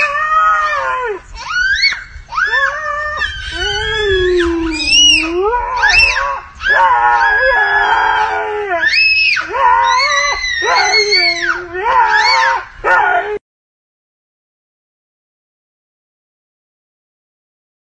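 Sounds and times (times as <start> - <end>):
toddler screaming and squealing: 0.0 - 12.7
dog howling and yowling: 0.0 - 13.4.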